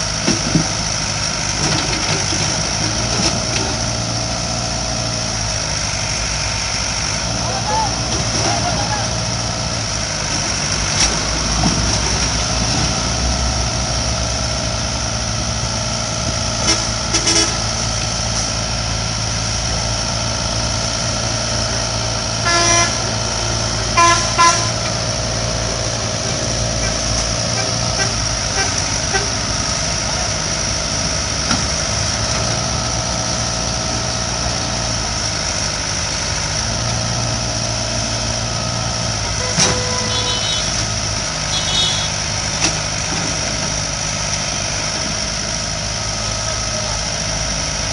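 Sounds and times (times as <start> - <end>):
diesel engine running: 0.0 - 47.9
vehicle horn toots: 22.4 - 23.1, 24.0 - 24.8, 39.4 - 40.8, 41.5 - 42.2.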